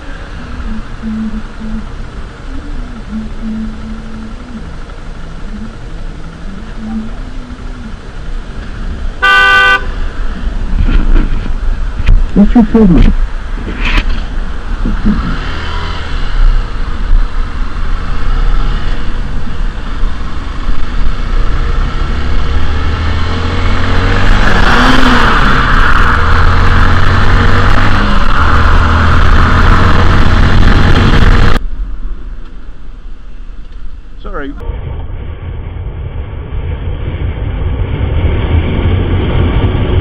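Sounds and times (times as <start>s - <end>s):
wind noise on microphone: 10.2s - 15.6s, 16.2s - 32.2s, 34.6s - 40.0s.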